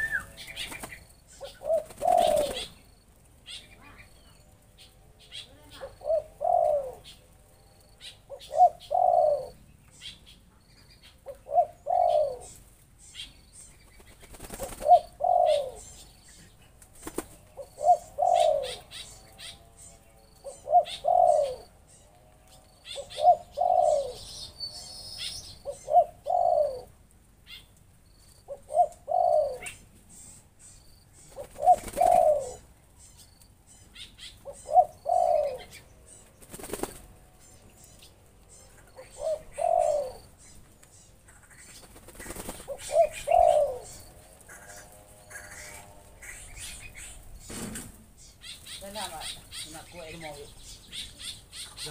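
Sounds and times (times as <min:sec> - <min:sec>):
wings flapping: 0:00.0 - 0:03.9, 0:13.8 - 0:15.8, 0:16.7 - 0:19.6, 0:31.2 - 0:32.6, 0:35.1 - 0:37.4, 0:40.6 - 0:50.3
dove cooing: 0:00.0 - 0:51.9.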